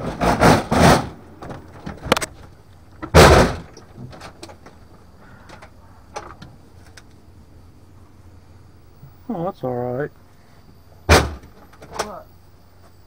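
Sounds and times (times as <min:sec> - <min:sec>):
door thudding shut: 0:03.0 - 0:04.2, 0:11.1 - 0:12.1.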